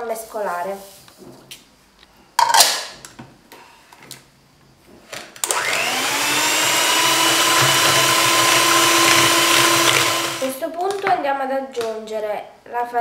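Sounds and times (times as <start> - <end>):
electric hand mixer whining: 5.4 - 10.5.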